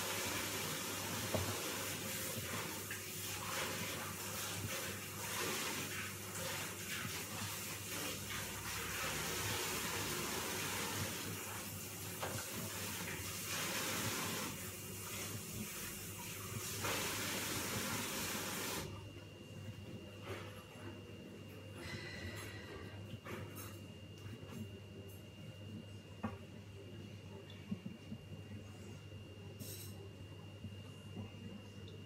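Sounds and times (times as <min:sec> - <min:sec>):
water running from tap: 0:00.0 - 0:18.9
low electrical hum: 0:00.0 - 0:32.0.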